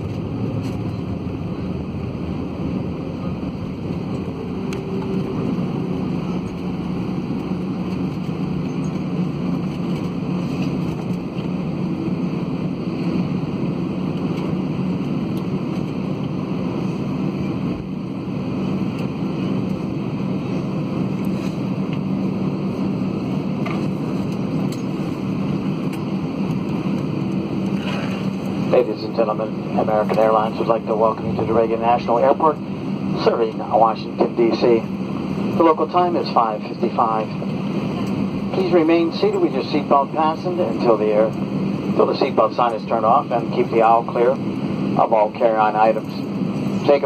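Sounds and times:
airplane cabin noise: 0:00.0 - 0:47.0
steady low hum: 0:00.0 - 0:47.0.

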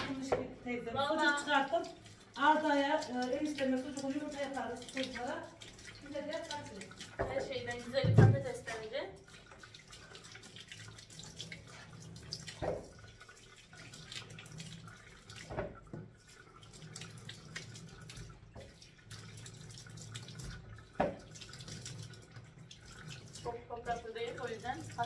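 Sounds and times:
items knocking in sink: 0:00.0 - 0:00.6, 0:07.2 - 0:08.9, 0:12.6 - 0:12.9, 0:15.4 - 0:16.1, 0:20.9 - 0:21.3
tap running into sink: 0:00.0 - 0:00.6, 0:07.1 - 0:09.0, 0:12.4 - 0:13.0, 0:15.4 - 0:16.2, 0:20.3 - 0:21.6.

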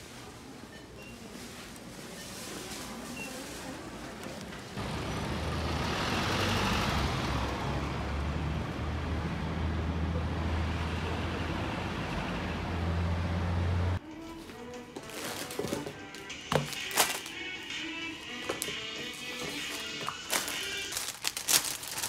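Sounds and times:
bus engine drone: 0:04.6 - 0:14.0
vehicle passing with tyre noise: 0:04.8 - 0:14.0.

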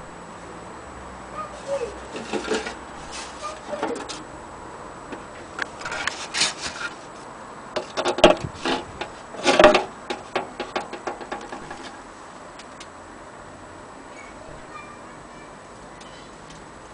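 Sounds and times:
hand scraping metal horn: 0:01.4 - 0:04.2, 0:07.8 - 0:12.0.

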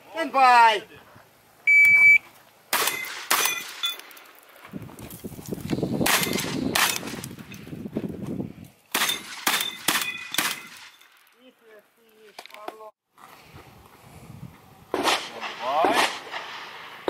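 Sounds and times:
shot timer beep: 0:01.7 - 0:02.2
shotgun blasts: 0:02.7 - 0:03.8, 0:06.0 - 0:07.2, 0:08.9 - 0:11.0, 0:14.9 - 0:17.0.

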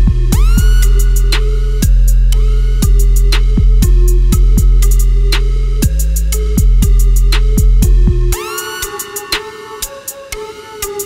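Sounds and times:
deep sustained bass: 0:00.0 - 0:08.4
drum machine beat: 0:00.0 - 0:11.0.

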